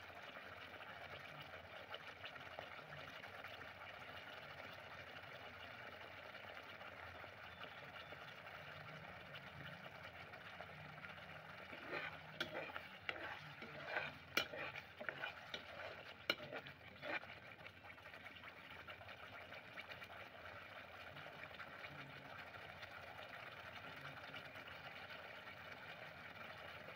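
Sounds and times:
curry sizzling in pot: 0:00.0 - 0:26.9
spatula scraping and knocking pot: 0:11.0 - 0:17.4.

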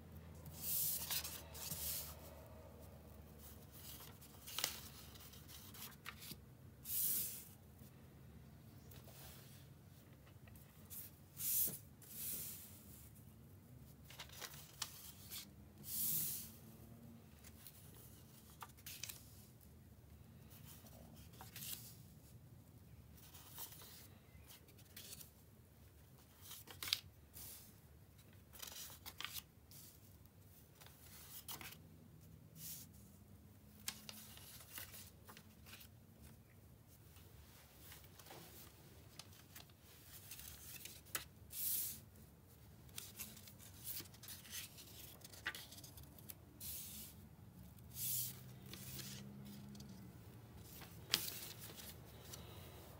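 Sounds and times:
paper sliding on a surface: 0:00.6 - 0:02.4, 0:15.3 - 0:16.6, 0:47.9 - 0:49.8.

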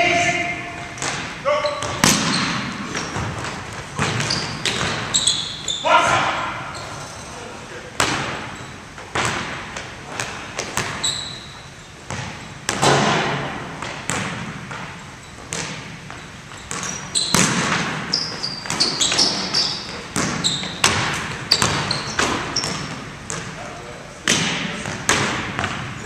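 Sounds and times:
sneakers squeaking: 0:00.0 - 0:26.0
basketball bouncing on hardwood: 0:01.0 - 0:05.1, 0:15.5 - 0:18.1, 0:20.1 - 0:23.5, 0:24.3 - 0:25.9.

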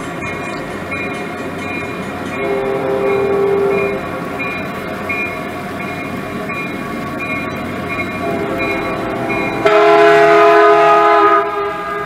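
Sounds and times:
model locomotive horn blast: 0:02.4 - 0:04.0, 0:08.2 - 0:12.0.

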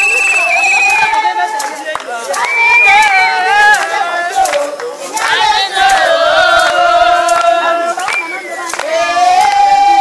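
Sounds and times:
sharp hand claps: 0:00.0 - 0:09.8
group of voices singing: 0:00.0 - 0:10.0.

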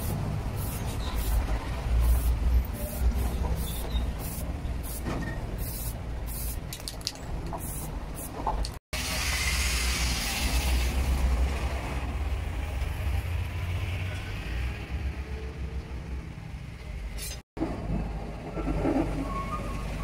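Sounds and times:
aerosol spray bursts: 0:00.0 - 0:01.4.

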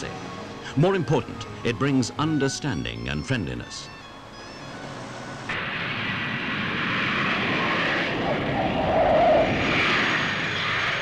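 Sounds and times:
jet engines rushing: 0:03.6 - 0:11.0.

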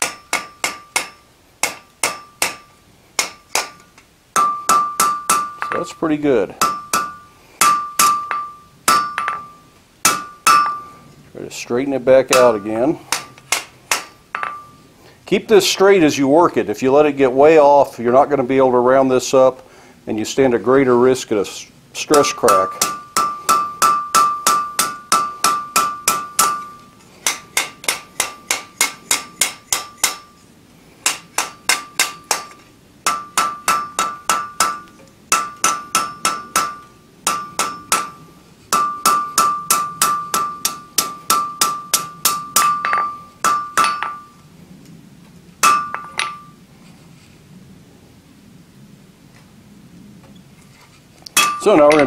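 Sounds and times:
anvil ringing: 0:00.0 - 0:03.8, 0:04.4 - 0:06.0, 0:06.6 - 0:11.0, 0:12.3 - 0:14.8, 0:22.1 - 0:30.3, 0:33.1 - 0:44.4, 0:45.6 - 0:46.6, 0:51.4 - 0:52.0
hammer striking metal on anvil: 0:00.0 - 0:06.0, 0:06.6 - 0:11.0, 0:12.3 - 0:14.8, 0:22.1 - 0:30.3, 0:31.0 - 0:44.4, 0:45.6 - 0:46.6, 0:51.4 - 0:52.0.

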